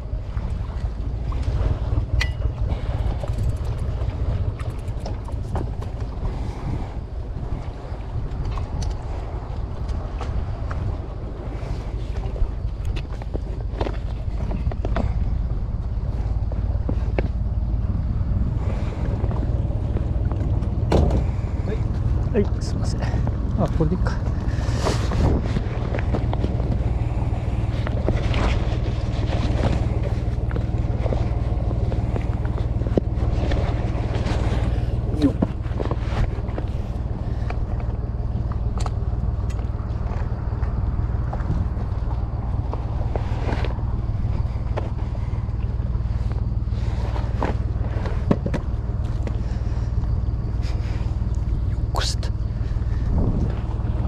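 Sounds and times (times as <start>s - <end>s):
steady low rumble: 0.0s - 54.0s
wind buffeting microphone: 0.0s - 54.0s
bicycle being wheeled clicking: 2.2s - 6.0s.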